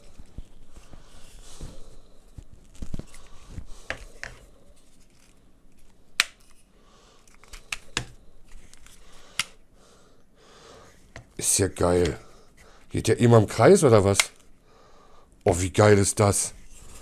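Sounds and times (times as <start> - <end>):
plastic handling noise: 0.0 - 9.5.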